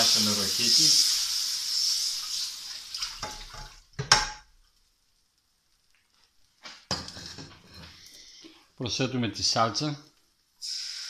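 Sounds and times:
hot fat hissing in water: 0.0 - 3.7, 10.6 - 11.0.

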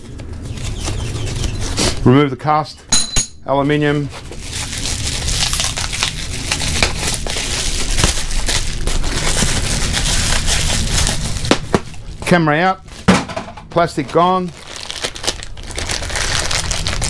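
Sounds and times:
bubble wrap crinkling: 3.6 - 13.1, 13.8 - 17.0.

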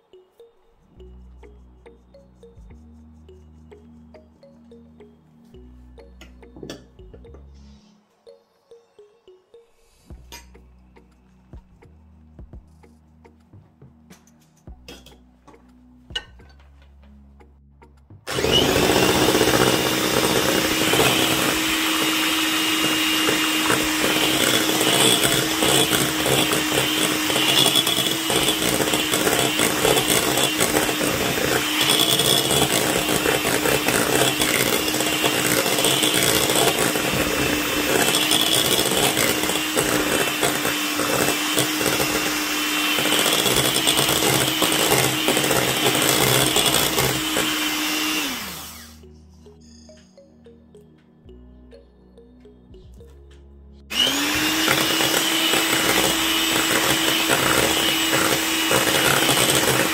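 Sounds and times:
electric hand mixer whisking batter: 18.3 - 49.0, 53.9 - 59.9.

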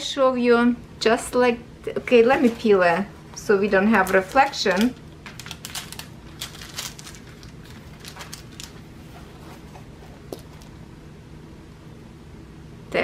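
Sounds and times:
plastic film peeling crackles: 3.9 - 9.0.

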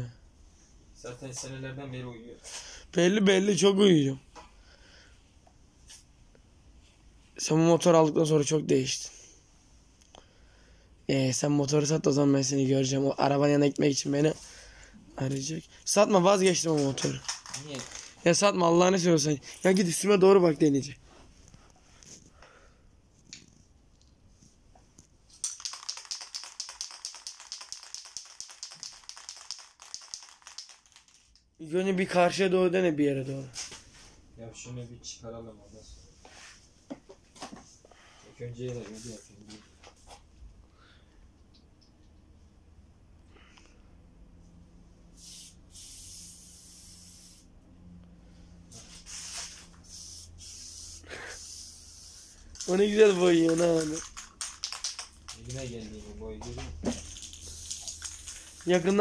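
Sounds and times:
spray can ball rattling: 16.3 - 18.4, 25.3 - 31.5, 45.2 - 47.4, 49.1 - 55.8, 56.8 - 59.0.

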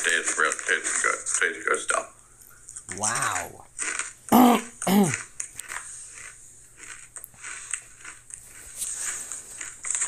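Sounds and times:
man clearing his throat: 4.3 - 5.2.

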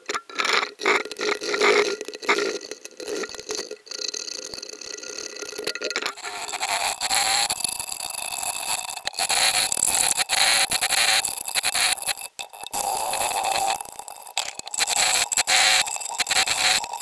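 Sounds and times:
hand file scraping plastic: 0.0 - 2.6.

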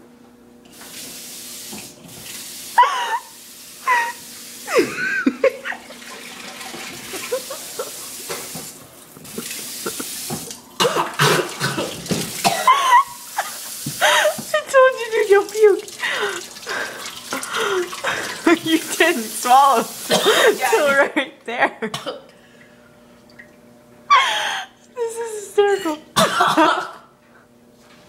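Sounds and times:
kitchen tap running water: 0.6 - 21.1.

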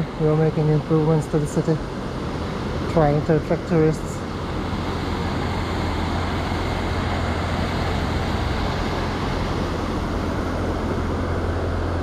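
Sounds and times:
water rushing over weir: 0.0 - 12.0
deep rumble: 2.7 - 12.0.

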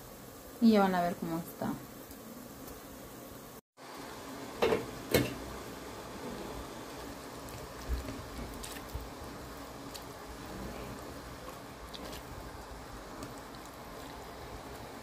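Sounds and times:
syrup bubbling in a pot: 4.0 - 15.0.

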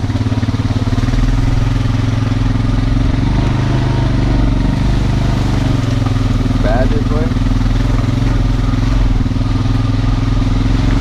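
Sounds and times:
engine idling with even throb: 0.0 - 11.0.

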